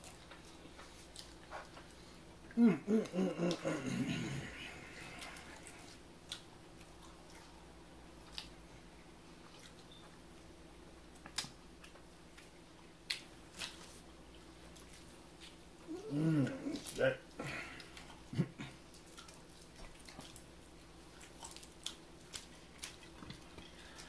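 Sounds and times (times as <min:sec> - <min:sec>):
faint steady hum: 0:00.0 - 0:24.0
person chewing food: 0:00.0 - 0:24.0.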